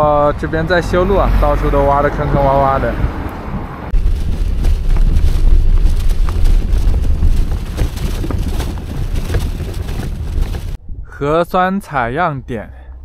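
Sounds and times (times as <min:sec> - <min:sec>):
wind rumbling on microphone: 0:00.0 - 0:12.1
tyres crunching on dirt: 0:03.9 - 0:10.8.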